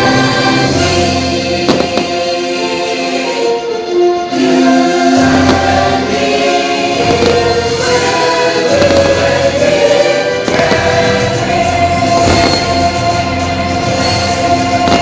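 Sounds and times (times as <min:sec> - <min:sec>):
choir singing long notes: 0:00.0 - 0:15.0
fireworks popping: 0:01.7 - 0:02.2, 0:07.0 - 0:07.7, 0:08.7 - 0:09.4, 0:10.4 - 0:11.2, 0:12.2 - 0:12.8, 0:14.8 - 0:15.0.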